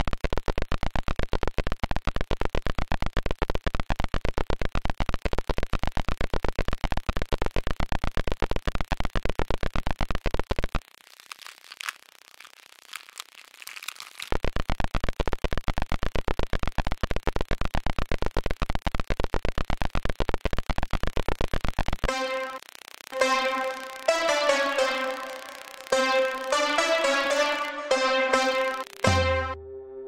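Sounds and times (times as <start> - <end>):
keyboard melody: 22.1 - 22.6, 23.2 - 30.0
faint high sounds: 22.1 - 30.0
pulsing synthesized noise: 22.1 - 30.0.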